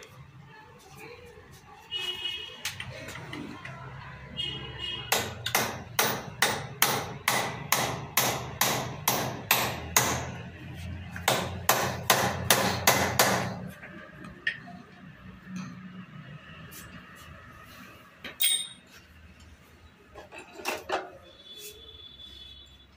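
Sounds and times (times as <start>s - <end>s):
hammer striking: 5.1s - 10.6s, 11.2s - 13.7s.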